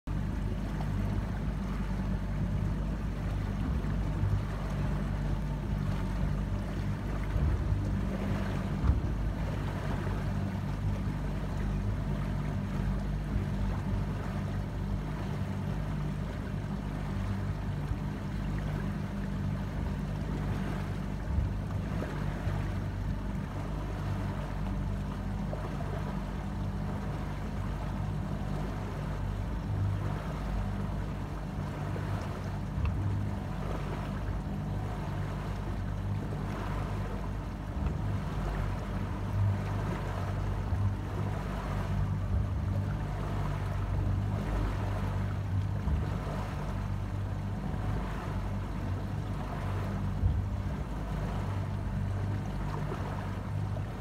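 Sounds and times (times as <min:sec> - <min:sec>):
motorboat engine humming: 0:00.0 - 0:54.0.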